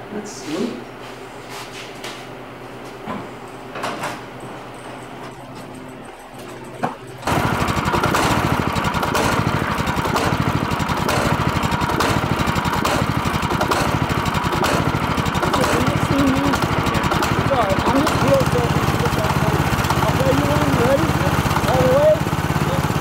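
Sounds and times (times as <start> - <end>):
small engine idling: 5.7 - 23.0.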